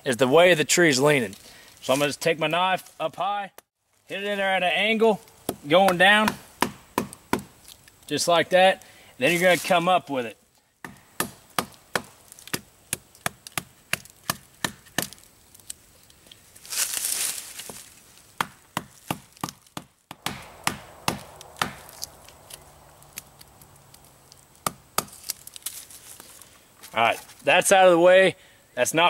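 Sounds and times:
burst of noise: 20.2s - 25.0s.

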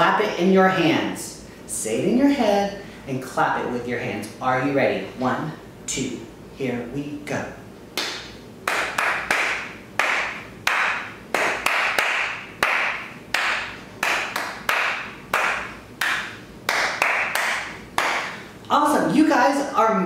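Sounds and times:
hand claps in a rhythm: 8.0s - 18.4s.

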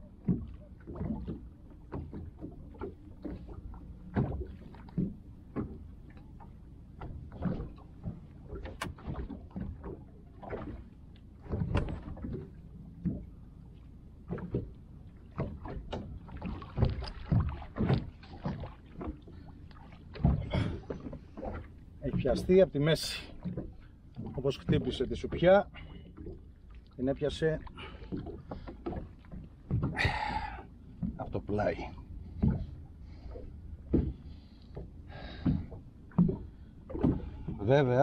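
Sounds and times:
water slapping boat hull: 0.0s - 38.0s.

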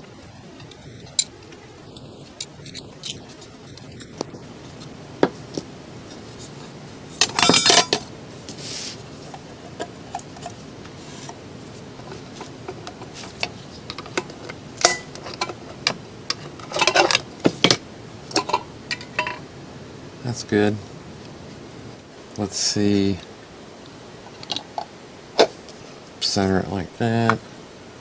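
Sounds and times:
tools clicking and tapping on metal: 12.4s - 19.4s.

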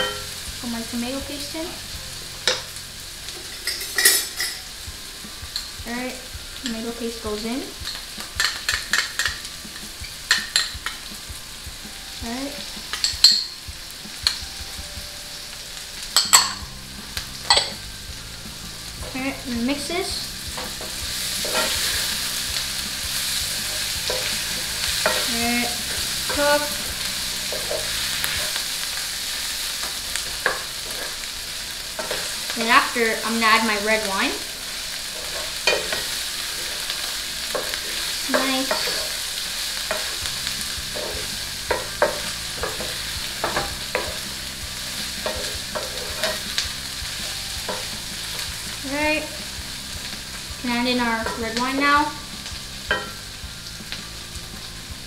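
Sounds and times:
vegetables sizzling in a frying pan: 0.0s - 55.0s
wooden spatula scraping a pan: 18.9s - 28.8s, 39.8s - 49.4s
wooden spatula knocking a pan: 39.9s - 44.2s.

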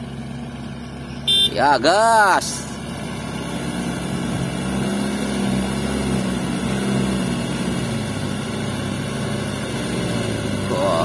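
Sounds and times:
excavator running: 0.0s - 11.0s
truck diesel engine under throttle: 0.0s - 11.0s.

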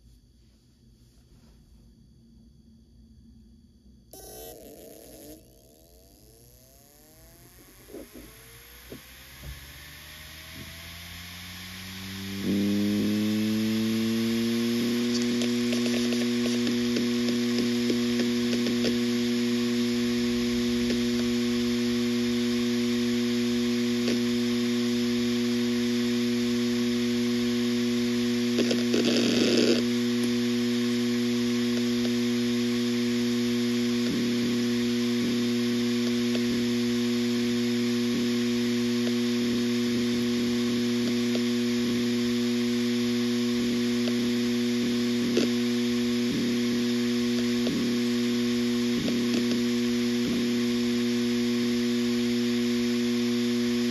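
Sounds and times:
hard drive humming: 4.0s - 53.9s
buzzing rattle of phone: 4.1s - 22.7s
hard drive seek clicks: 15.0s - 19.5s.

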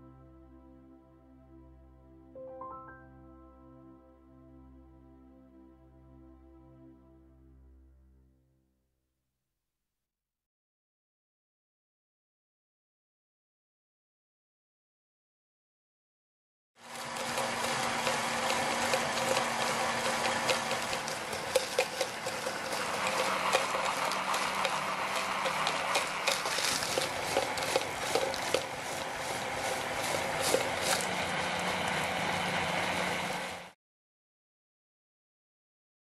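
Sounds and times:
drill motor hum: 16.8s - 33.7s.

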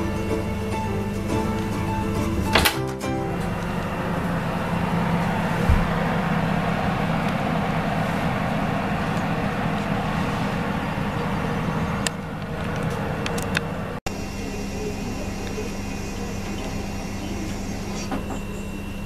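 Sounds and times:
oven fan whirring: 0.0s - 19.0s
low thump: 5.6s - 6.0s.

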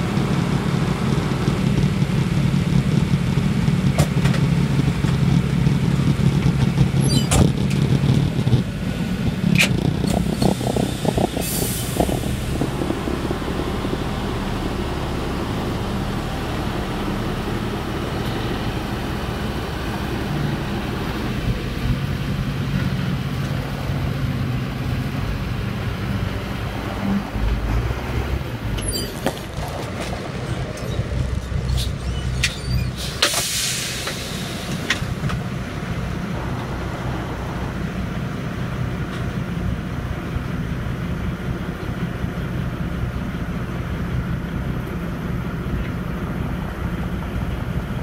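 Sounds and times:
heavy diesel machinery running: 0.0s - 48.0s
short hiss: 33.0s - 35.0s.

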